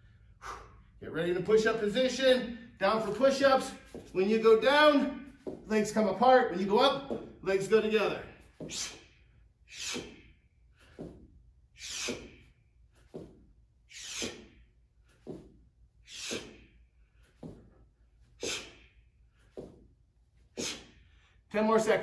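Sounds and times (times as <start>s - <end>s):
man breathing hard: 0.0s - 1.0s, 8.3s - 21.5s.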